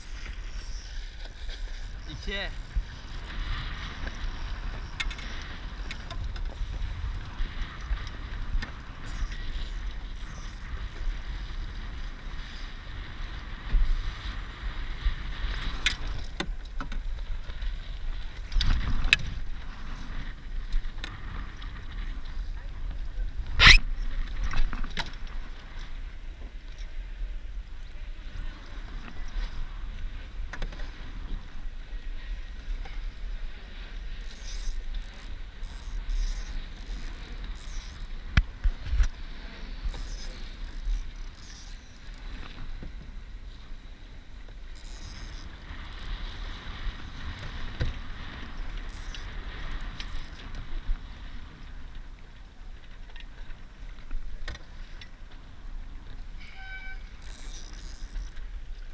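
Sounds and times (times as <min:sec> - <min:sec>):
wind buffeting microphone: 0:00.0 - 0:58.9.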